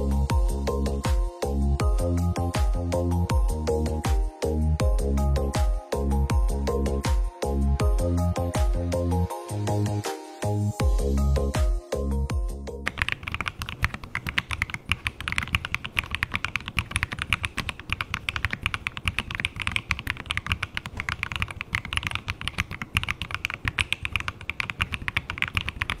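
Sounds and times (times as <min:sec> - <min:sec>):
background music: 0:00.0 - 0:13.1
mechanical keyboard typing: 0:12.8 - 0:26.0.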